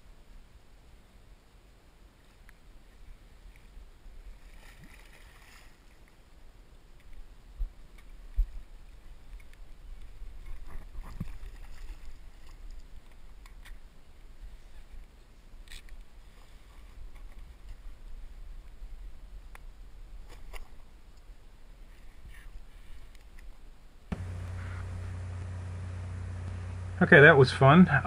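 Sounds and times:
water sloshing: 4.3 - 6.2, 9.3 - 13.3
clicks: 24.1 - 26.8
dull thumps: 24.1 - 26.9
low rumble: 24.1 - 28.0.

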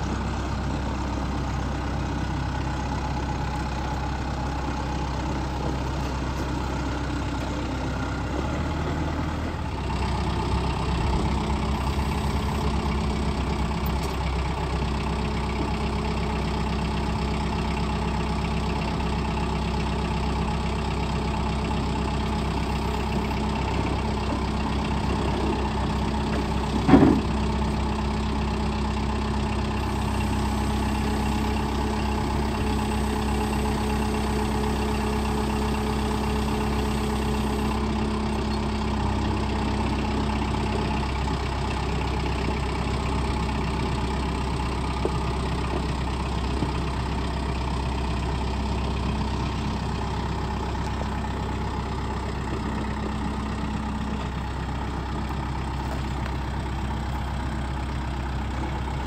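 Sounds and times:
tractor diesel engine idling: 0.0 - 59.0
loud clunk: 26.8 - 27.4.

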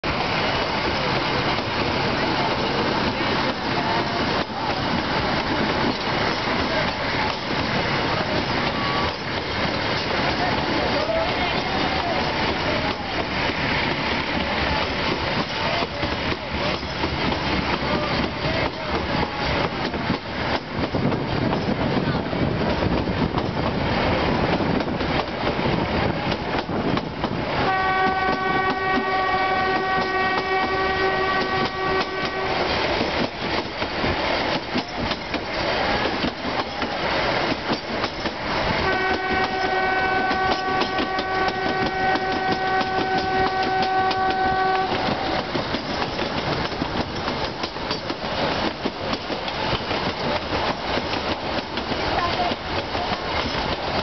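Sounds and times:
train rolling along track: 0.0 - 54.0
train horn blasts: 27.6 - 32.8, 38.8 - 45.4.

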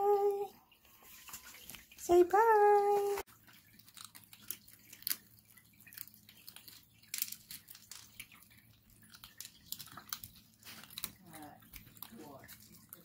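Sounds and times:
kittens crunching dry kibble: 3.3 - 13.0.

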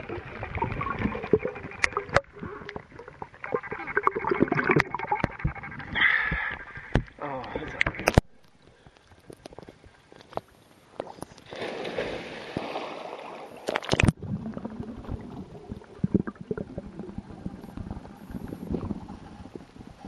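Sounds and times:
underwater bubbling and gurgling: 0.0 - 11.5, 12.4 - 20.0
water sloshing: 11.0 - 16.3
loud splash: 11.5 - 14.1.

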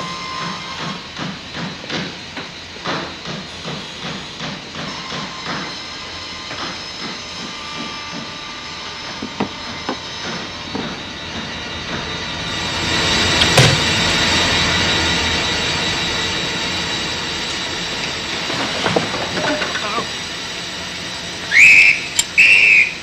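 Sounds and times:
workshop machinery humming: 4.9 - 23.0
heavy impact: 13.4 - 14.3.

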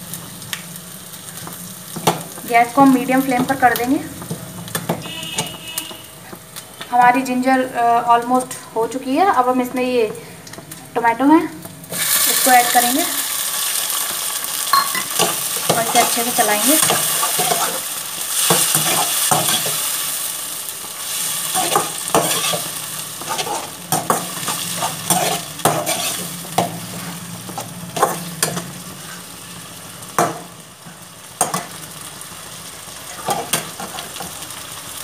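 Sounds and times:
vegetables sizzling in a pan: 0.0 - 35.0
metal spoon scraping a pan: 15.0 - 17.8, 18.4 - 19.9, 21.5 - 29.2, 33.2 - 34.3.

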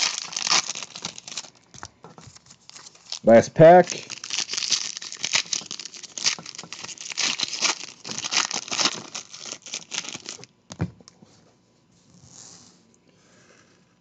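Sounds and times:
plastic wrapper crinkling: 0.0 - 10.6.

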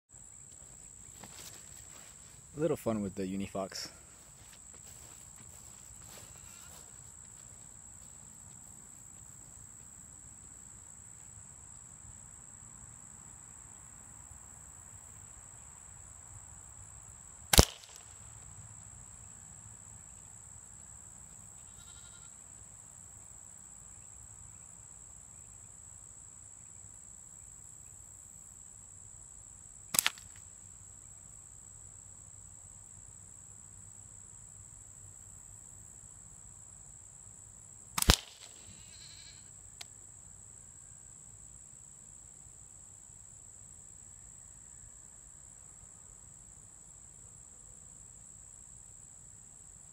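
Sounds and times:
insects droning: 0.1 - 49.9
slingshot ammo striking target: 17.5 - 18.2, 30.0 - 30.3, 38.0 - 38.7.

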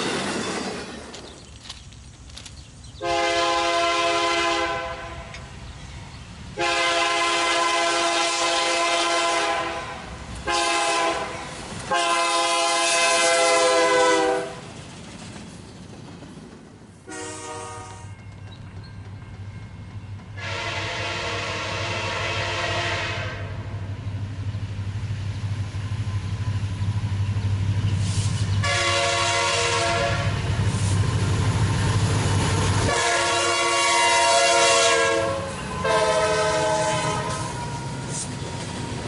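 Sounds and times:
train rumble: 0.0 - 39.0
locomotive air horn: 3.0 - 5.4, 6.6 - 14.6, 17.1 - 18.1, 20.4 - 23.7, 28.6 - 30.4, 32.9 - 38.3.

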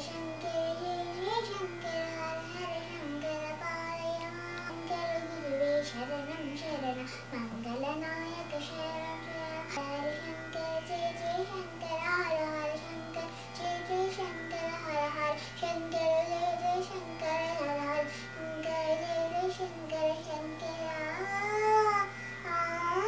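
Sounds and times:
girl singing devotional song: 0.0 - 23.0.

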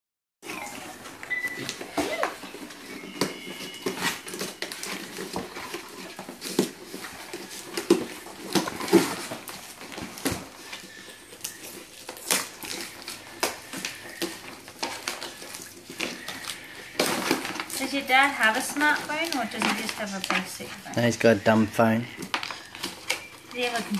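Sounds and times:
cardboard and paper rustling: 0.4 - 23.9.

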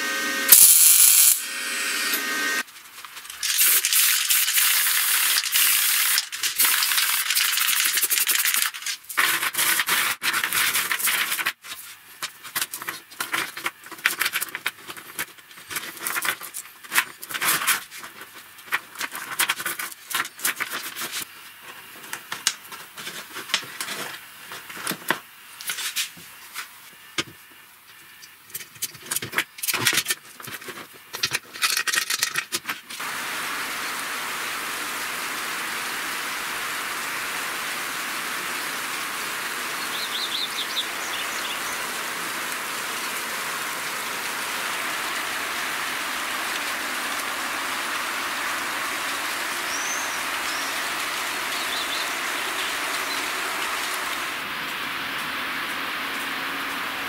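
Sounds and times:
aerosol spray paint hissing: 0.5 - 1.4, 3.4 - 8.7.

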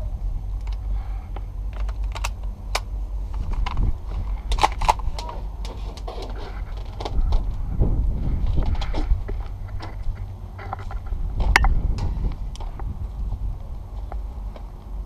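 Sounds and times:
wind rumble on microphone: 0.0 - 15.0
airsoft guns snapping: 1.7 - 3.8, 4.5 - 6.1.

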